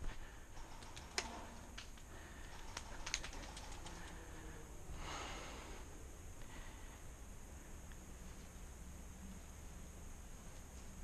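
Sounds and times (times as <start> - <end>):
faint steady high hiss: 0.0 - 11.0
light clicks and rustles: 0.1 - 4.5.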